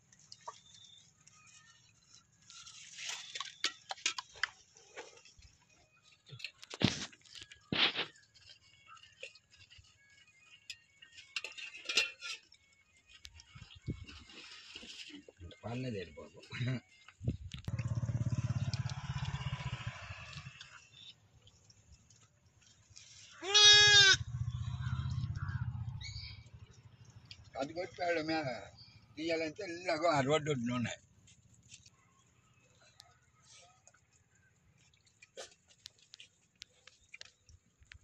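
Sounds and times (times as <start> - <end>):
lamb bleating: 23.4 - 24.3.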